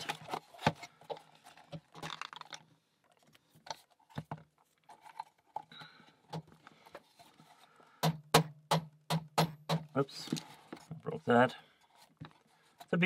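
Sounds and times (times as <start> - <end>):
plywood pieces clicking and creaking: 0.0 - 3.8.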